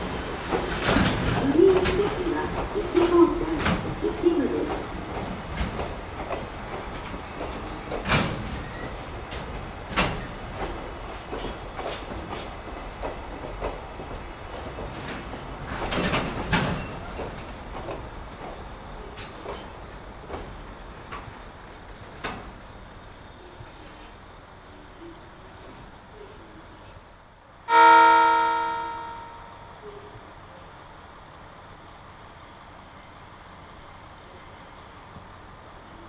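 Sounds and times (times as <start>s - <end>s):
train wheels clunking over rail joints: 0.0s - 26.0s
train rumble: 0.0s - 36.0s.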